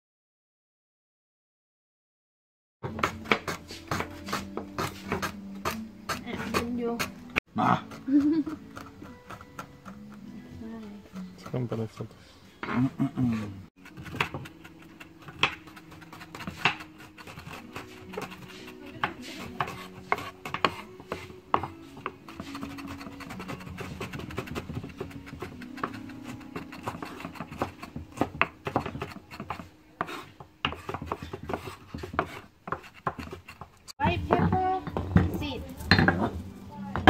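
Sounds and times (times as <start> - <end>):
knife scraping through pieces: 2.9 - 7.2, 12.6 - 34.0
knife tapping on wooden board: 15.2 - 15.8, 16.4 - 18.4, 26.6 - 33.4.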